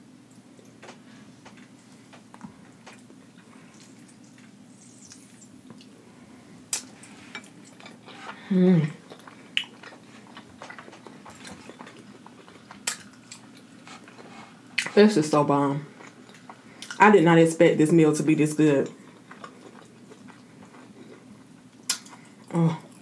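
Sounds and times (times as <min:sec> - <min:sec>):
steady low hum: 0:00.0 - 0:23.0
person humming mmm: 0:08.4 - 0:09.0, 0:22.5 - 0:23.0
wet chewing clicks and smacks: 0:09.1 - 0:14.2, 0:19.0 - 0:23.0.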